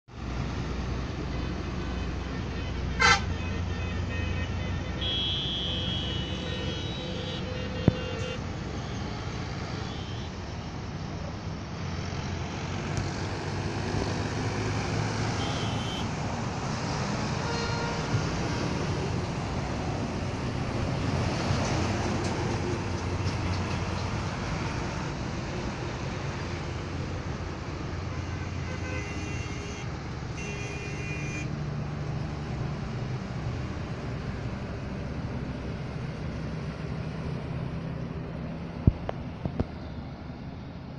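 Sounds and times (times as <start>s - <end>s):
truck engines droning: 0.1s - 40.9s.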